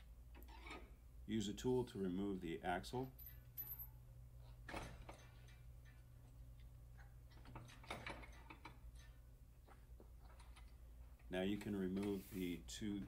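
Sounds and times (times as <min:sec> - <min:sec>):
low steady hum: 0:00.0 - 0:13.0
metallic clicks and scraping: 0:03.2 - 0:12.4.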